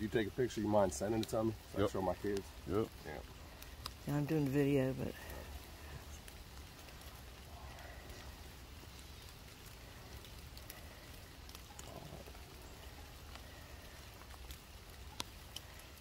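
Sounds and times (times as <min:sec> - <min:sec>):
light rain on grass and leaves: 0:00.0 - 0:16.0.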